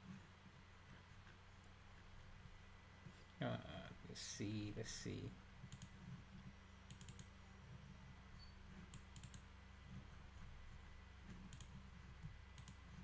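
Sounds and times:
faint low hum: 0.0s - 13.0s
computer mouse clicking: 5.6s - 7.4s, 8.7s - 10.0s, 11.2s - 13.0s.

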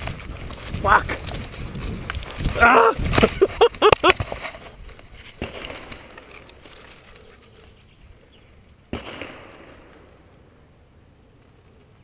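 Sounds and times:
rustling in grass: 0.0s - 8.8s
man crying out and grunting: 2.6s - 3.7s.

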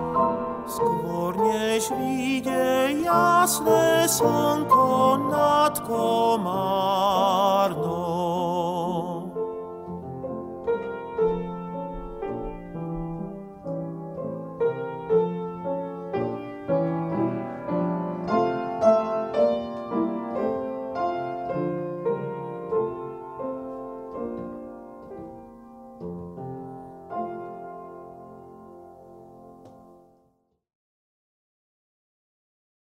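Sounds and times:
grand piano accompaniment: 0.0s - 30.4s
man singing with vibrato: 0.7s - 9.7s.

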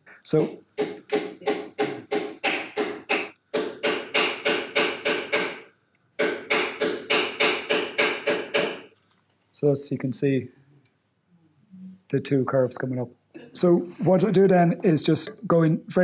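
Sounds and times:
hammer tapping on metal: 0.3s - 8.9s.

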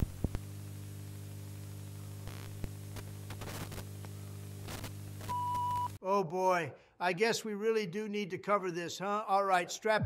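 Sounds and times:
bursts of crackle: 0.0s - 6.0s
electrical hum: 0.0s - 6.0s
tape hiss: 0.0s - 6.0s.

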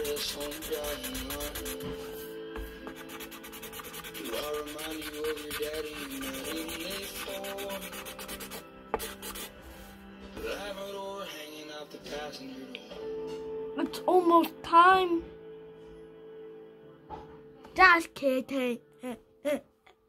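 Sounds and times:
marker scribbling on paper: 0.0s - 9.9s.

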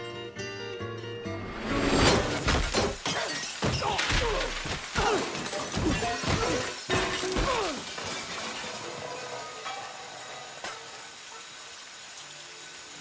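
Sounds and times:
crockery and glass shattering: 1.6s - 10.8s
metal pots crashing on tiled floor: 1.9s - 10.0s.

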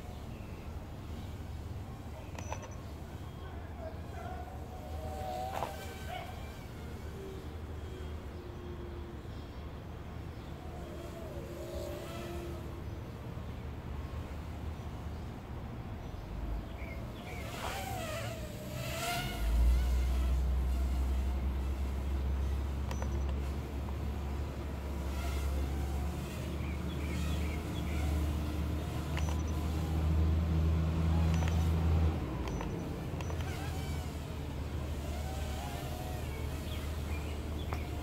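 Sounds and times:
quadcopter motors buzzing: 0.0s - 38.0s.

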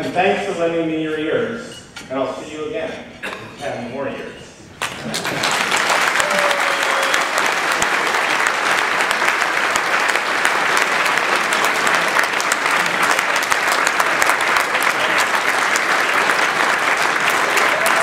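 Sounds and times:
audience applauding: 4.8s - 18.0s.

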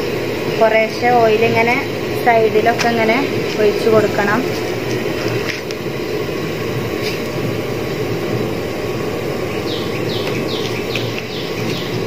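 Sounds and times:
steady rushing noise: 0.0s - 12.0s
small bird chirping: 9.5s - 12.0s.

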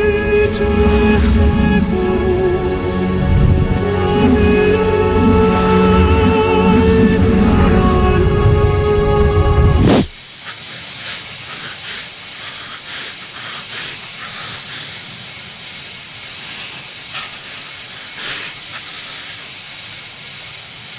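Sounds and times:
steady hiss: 0.0s - 20.9s
puffs of hiss: 9.8s - 20.9s.

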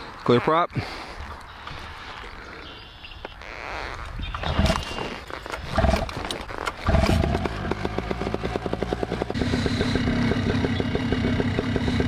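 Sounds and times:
two-stroke engine starting: 5.7s - 12.0s.

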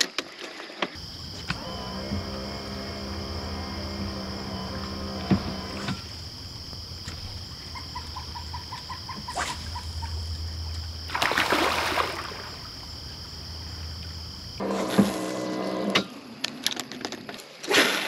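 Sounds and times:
insects chirring: 0.8s - 17.6s
low hum: 1.0s - 8.3s
pulsed calls: 1.2s - 10.6s
water splash: 10.7s - 13.0s.

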